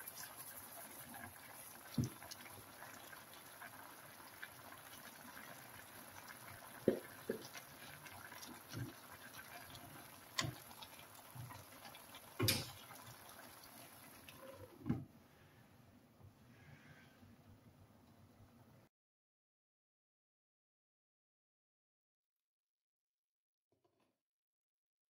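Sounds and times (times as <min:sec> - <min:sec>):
vegetables sizzling in a pan: 0:00.0 - 0:14.3.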